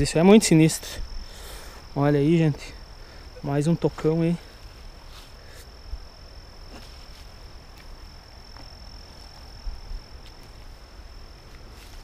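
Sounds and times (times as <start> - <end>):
insect chirring: 0.0 - 12.0.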